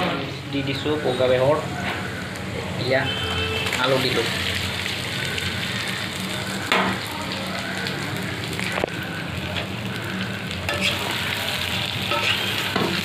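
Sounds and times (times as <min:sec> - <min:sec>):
potatoes sizzling in a pan: 0:03.6 - 0:13.0.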